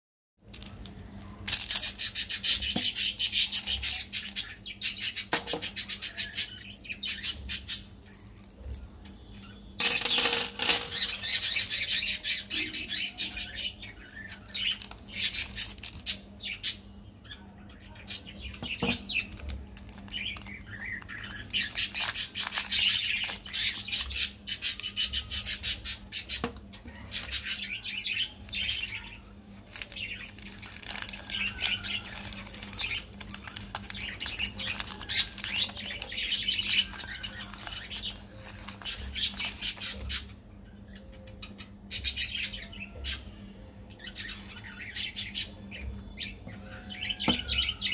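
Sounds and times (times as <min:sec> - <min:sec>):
candy wrappers crinkling: 0:00.4 - 0:02.5, 0:09.8 - 0:12.1, 0:13.8 - 0:16.2, 0:19.1 - 0:24.1, 0:28.2 - 0:40.1.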